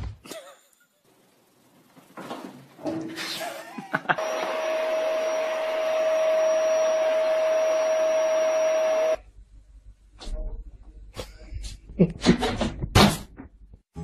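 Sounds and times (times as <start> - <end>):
small appliance motor whirring: 4.2 - 9.2.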